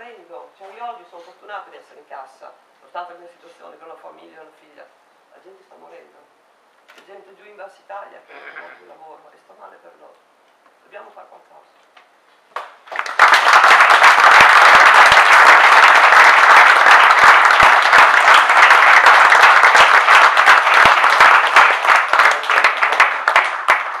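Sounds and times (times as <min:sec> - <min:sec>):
audience applauding: 0:12.8 - 0:24.0.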